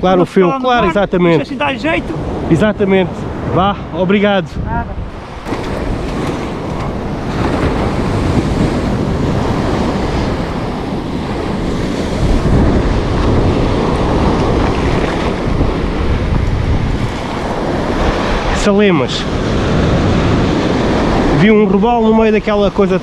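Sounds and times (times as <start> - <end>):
wind buffeting microphone: 0.0 - 23.0
surf washing onto beach: 5.0 - 23.0.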